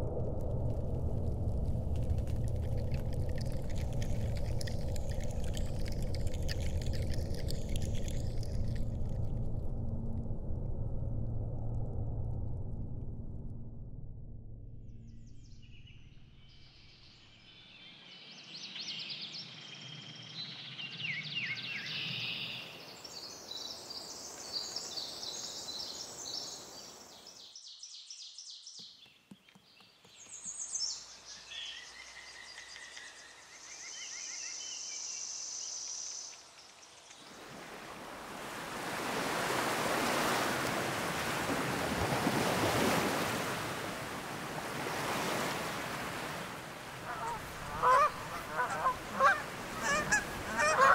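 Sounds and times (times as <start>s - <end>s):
small birds chirping: 2.5s - 9.0s, 17.5s - 37.3s, 47.1s - 50.9s
sea surf on shore: 37.2s - 50.9s.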